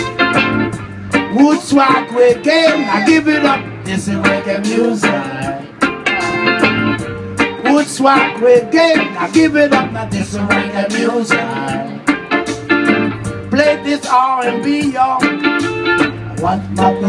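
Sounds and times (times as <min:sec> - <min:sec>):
live reggae band music: 0:00.0 - 0:17.0.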